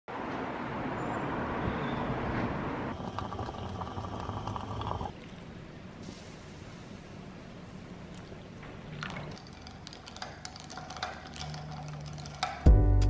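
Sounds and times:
moka pot sputtering: 2.9 - 5.1
coffee pouring over ice: 2.9 - 5.3, 9.0 - 12.6.

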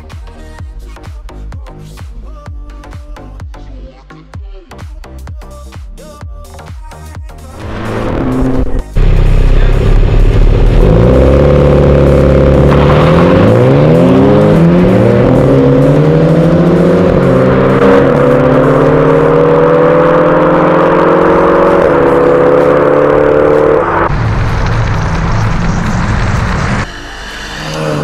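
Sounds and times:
car engine at full throttle: 7.5 - 28.0.

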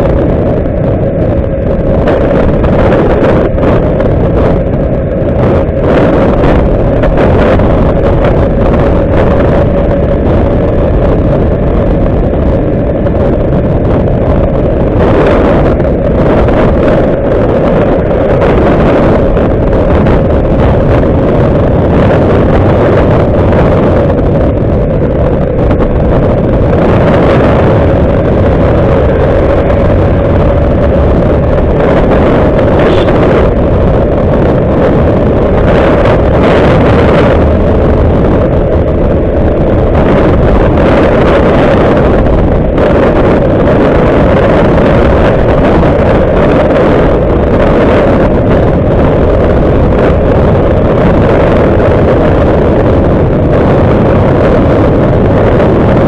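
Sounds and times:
motorcycle engine and tyres rumbling: 0.0 - 56.0
wind buffeting microphone: 0.0 - 56.0.

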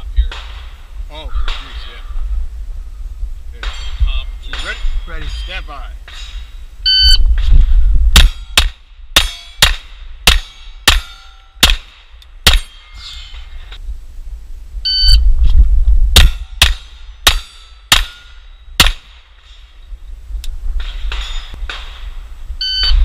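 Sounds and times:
steel plates ringing: 3.6 - 6.7, 8.2 - 11.8, 12.4 - 13.8, 16.2 - 18.8
electronic shot timer beep: 6.9 - 7.2, 14.9 - 15.2, 22.6 - 23.0
pistol shots: 8.2 - 12.7, 18.8 - 19.2.

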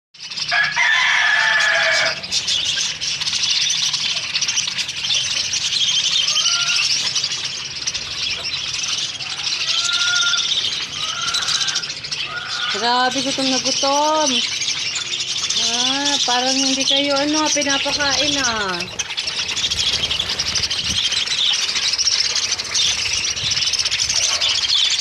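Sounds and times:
budgerigars chattering: 0.2 - 25.0
low bird call: 0.5 - 16.3
wings flapping: 17.4 - 25.0.

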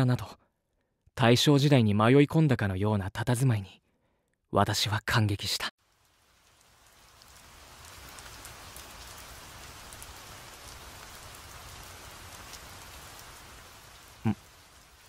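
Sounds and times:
rain pattering: 5.8 - 15.0.

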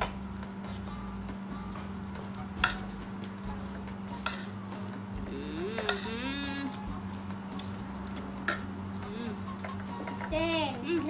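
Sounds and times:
steady low hum: 0.0 - 11.0
cutlery clinking against plates: 2.6 - 2.9, 4.2 - 4.6, 5.8 - 6.1, 8.4 - 8.7, 9.6 - 10.3.

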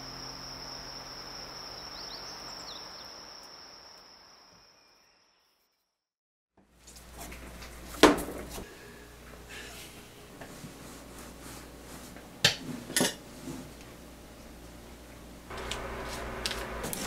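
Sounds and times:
faint low hum: 0.0 - 4.5
kitchenware clattering: 12.4 - 13.2.

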